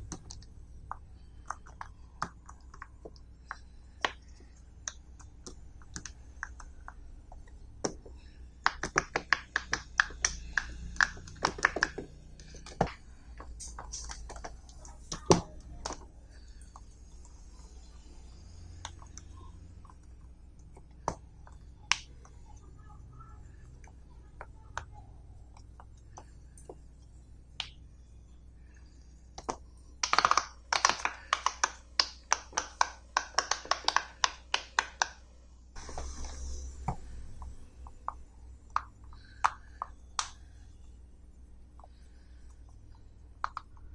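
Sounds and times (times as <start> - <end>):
fidget toy bubbles popping: 29.4 - 35.1.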